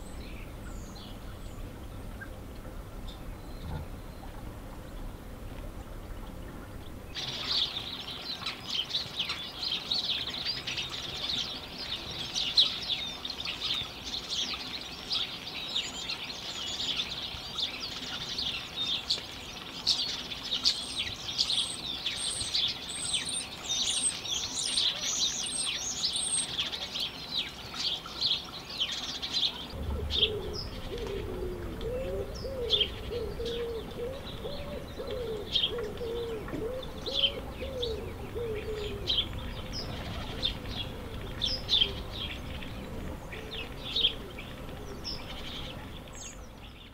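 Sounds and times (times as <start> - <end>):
sparrows chirping: 0.0 - 2.4, 6.6 - 46.9
wood pigeon cooing: 3.3 - 4.6, 29.7 - 45.9.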